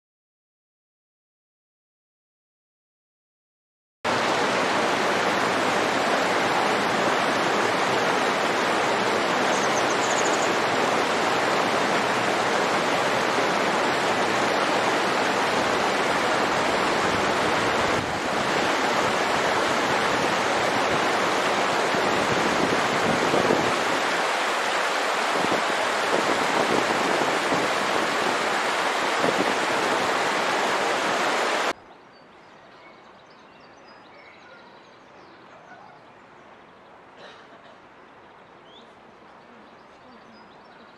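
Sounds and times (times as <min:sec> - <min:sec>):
stream rushing over boulders: 0:04.1 - 0:31.8.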